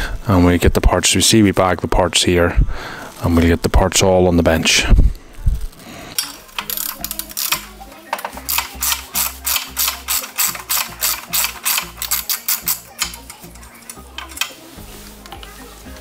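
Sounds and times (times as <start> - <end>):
socket ratchet wrench clicking: 6.1 - 14.6.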